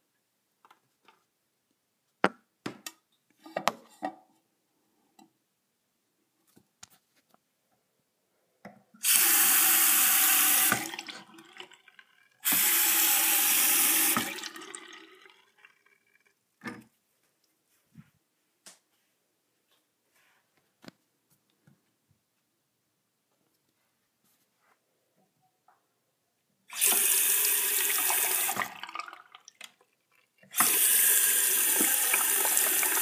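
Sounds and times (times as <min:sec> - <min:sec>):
faucet water running into basin: 0:09.0 - 0:15.8, 0:26.7 - 0:29.9, 0:30.5 - 0:33.0.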